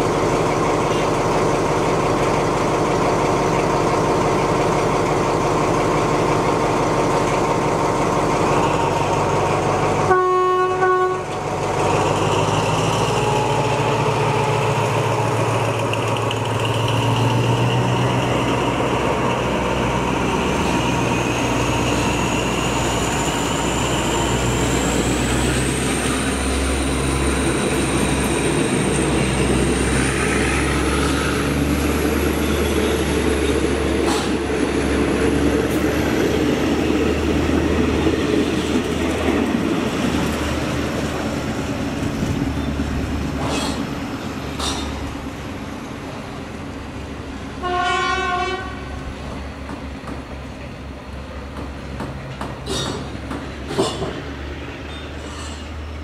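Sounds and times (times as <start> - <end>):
diesel locomotive engine: 0.0 - 56.0
locomotive horn: 10.0 - 11.5, 47.6 - 49.1.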